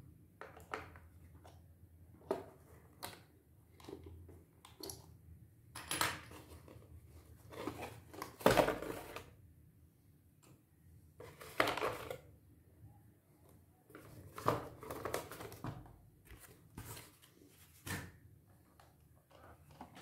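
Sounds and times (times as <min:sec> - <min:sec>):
cardboard rustling and scraping: 0:06.4 - 0:09.3, 0:16.3 - 0:18.1.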